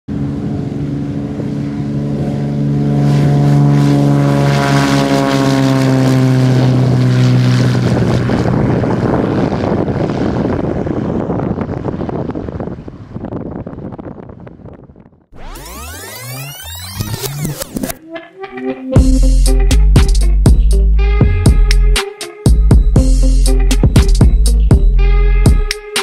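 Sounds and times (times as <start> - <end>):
propeller plane flying past: 0.1 - 16.9.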